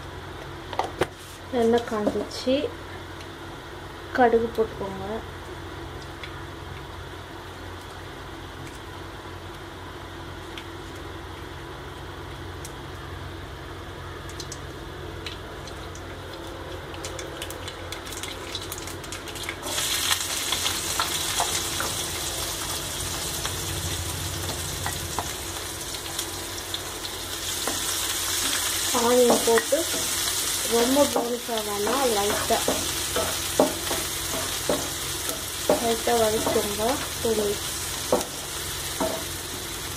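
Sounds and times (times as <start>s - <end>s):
low steady hum: 0.0s - 39.9s
oil sizzling: 13.7s - 39.9s
seeds popping in hot oil: 14.2s - 22.2s, 24.4s - 39.9s.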